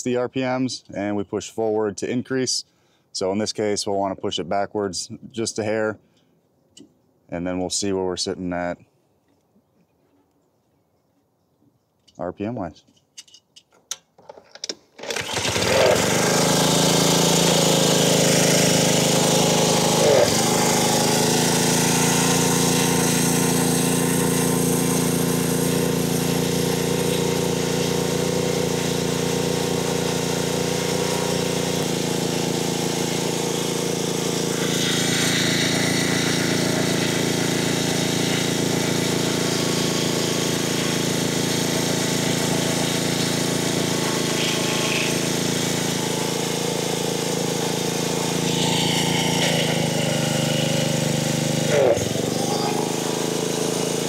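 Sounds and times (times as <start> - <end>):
small engine starting and running: 14.6 - 54.0.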